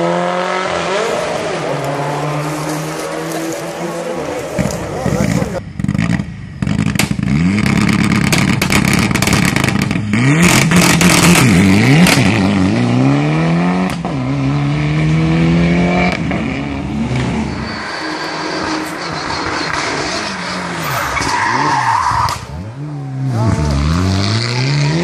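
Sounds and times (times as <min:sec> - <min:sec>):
car engine revving: 0:00.0 - 0:25.0
sharp exhaust pops: 0:04.6 - 0:12.3.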